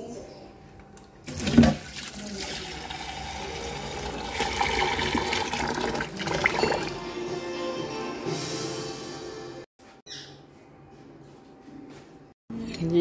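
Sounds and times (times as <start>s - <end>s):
tap water running into saucepan: 1.3s - 7.0s.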